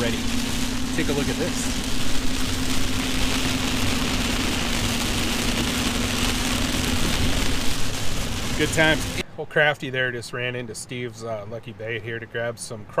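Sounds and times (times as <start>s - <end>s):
engine and tyre drone: 0.0s - 9.2s
heavy rain on car roof: 0.0s - 9.2s.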